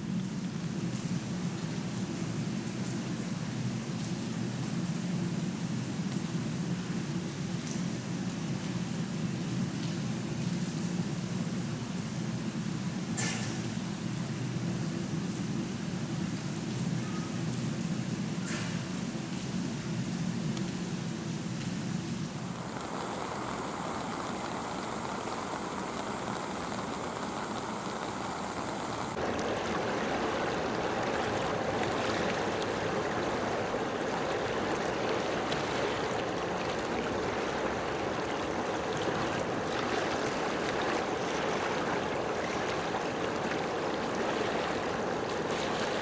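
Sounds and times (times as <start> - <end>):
background hiss: 20.8 - 46.0
running water rushing: 22.2 - 46.0.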